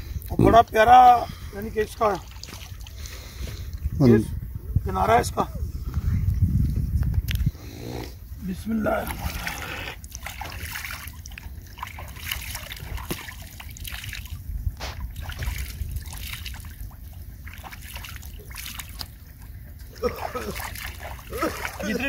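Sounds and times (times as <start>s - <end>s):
water dribbling from hands: 2.0s - 3.9s, 9.0s - 22.0s
water splashing onto face: 2.2s - 3.1s, 9.0s - 22.0s.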